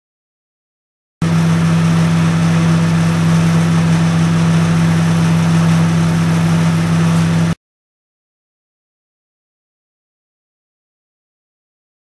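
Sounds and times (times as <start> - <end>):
microwave oven humming: 1.2 - 7.6.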